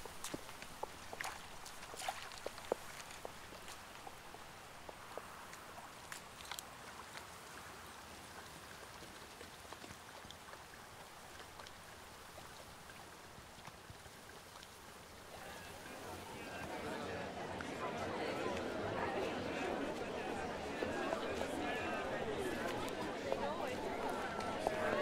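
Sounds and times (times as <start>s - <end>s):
small clicks and splashes: 0.0s - 15.4s
stream trickling: 0.0s - 25.0s.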